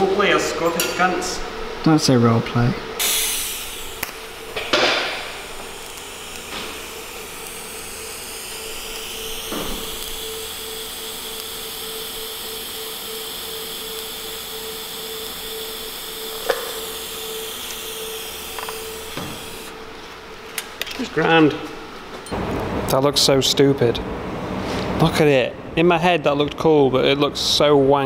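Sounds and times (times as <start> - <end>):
welding arc hissing: 3.0 - 19.8.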